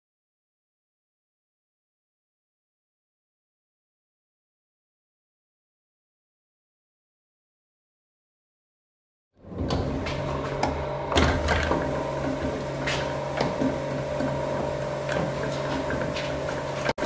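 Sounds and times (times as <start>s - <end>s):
printing press motor hum: 9.4s - 17.0s.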